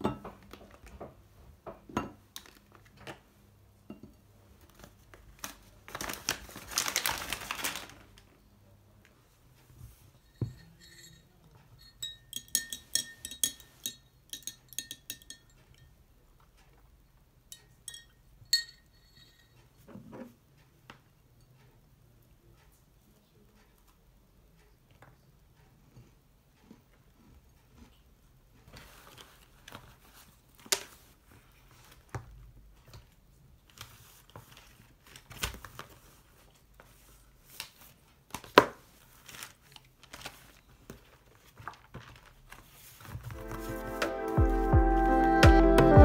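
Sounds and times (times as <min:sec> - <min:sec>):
glass clinking: 0:00.0 - 0:00.3, 0:10.2 - 0:16.0, 0:17.5 - 0:19.8
glassware tapping on tabletop: 0:00.0 - 0:00.4, 0:10.4 - 0:11.2, 0:11.8 - 0:15.8
rustling: 0:33.6 - 0:44.3.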